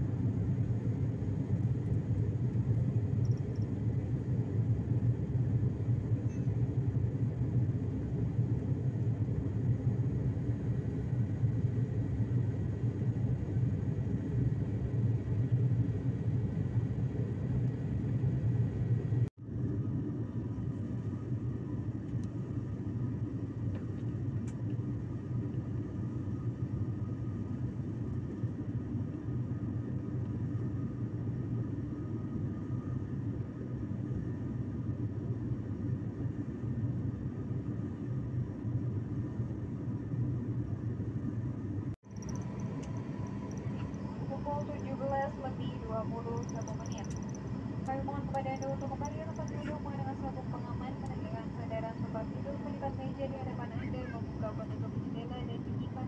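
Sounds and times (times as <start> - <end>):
airliner cabin engine drone: 0.0 - 56.0.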